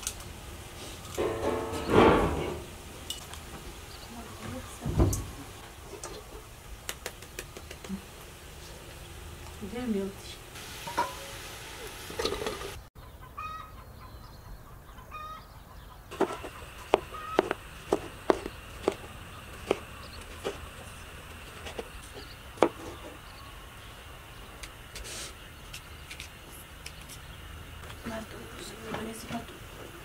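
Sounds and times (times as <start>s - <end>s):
hen clucking: 10.8s - 23.8s.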